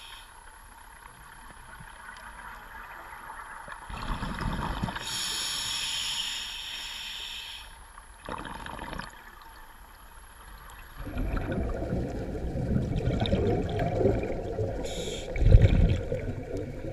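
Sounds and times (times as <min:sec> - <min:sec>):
regulator inhale hiss: 0:00.0 - 0:00.4, 0:05.0 - 0:07.9, 0:14.8 - 0:15.4
bubbling exhale: 0:11.0 - 0:16.4.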